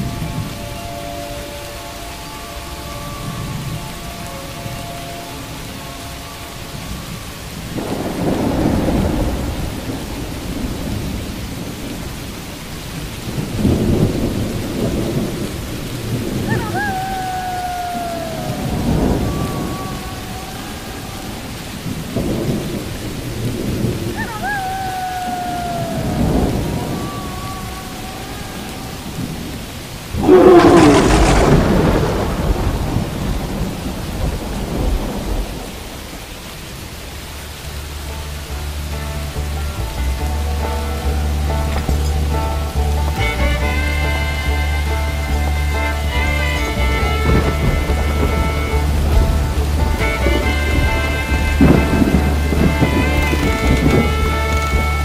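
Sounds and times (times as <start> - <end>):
steady rain: 0.0 - 55.0
thunder rumbling: 0.0 - 55.0
sharp thunderclap: 7.7 - 12.5, 29.0 - 36.3, 46.6 - 55.0
drawn-out falling tone: 16.3 - 23.1, 24.0 - 32.8.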